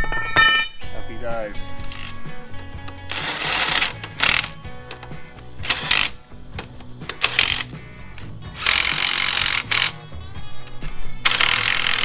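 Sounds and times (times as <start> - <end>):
background music: 0.0 - 12.0
cordless drill on metal: 1.7 - 2.3, 2.9 - 6.2, 7.1 - 7.8, 8.5 - 10.1, 11.2 - 12.0.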